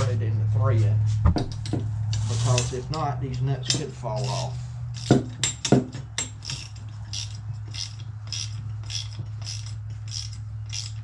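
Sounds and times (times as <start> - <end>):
steady low hum: 0.0 - 11.0
ratchet wrench clicking: 2.9 - 11.0.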